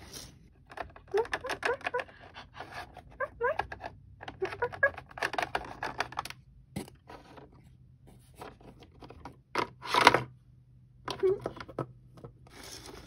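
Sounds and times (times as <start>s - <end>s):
plastic toy scraping and clicking: 0.6s - 6.4s.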